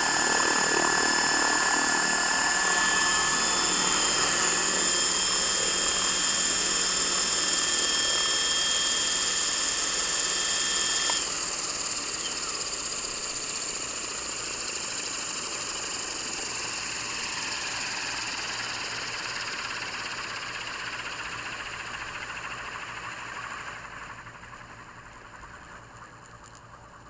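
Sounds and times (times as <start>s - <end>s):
electric motor whining: 0.0s - 14.5s
helicopter rotor whirring: 0.0s - 27.0s.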